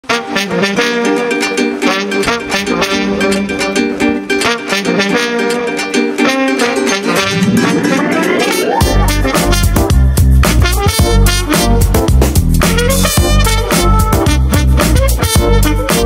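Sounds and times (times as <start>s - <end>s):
background music: 0.0s - 16.0s
rising sweep: 2.1s - 5.8s, 6.8s - 9.9s.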